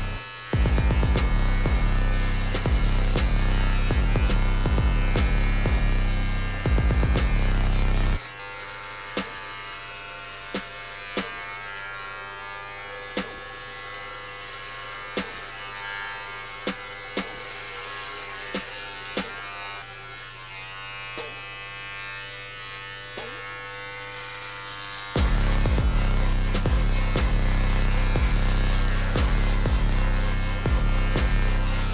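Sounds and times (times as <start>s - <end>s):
music: 0.0s - 8.3s, 10.5s - 11.3s, 13.1s - 13.4s, 15.2s - 15.6s, 16.6s - 19.4s, 24.2s - 31.9s
electric hair clipper buzzing: 0.0s - 31.9s.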